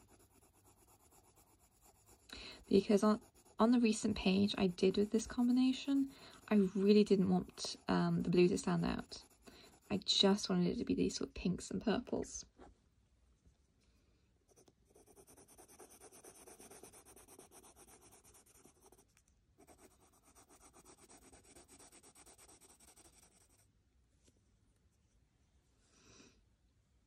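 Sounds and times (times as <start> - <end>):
pencil scratching on paper: 0.0 - 10.4, 14.5 - 23.6.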